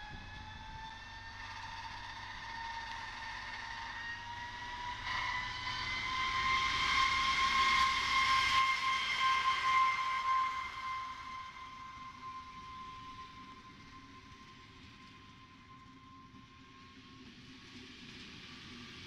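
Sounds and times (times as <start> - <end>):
diesel railcar engine whine: 0.0 - 19.0.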